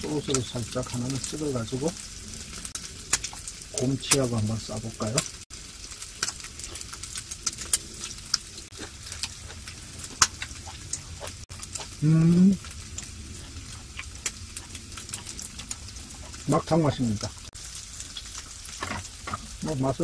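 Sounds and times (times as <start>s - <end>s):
fat popping and crackling: 0.0s - 20.0s
meat sizzling on a grill: 0.0s - 20.0s
person humming: 11.9s - 12.7s.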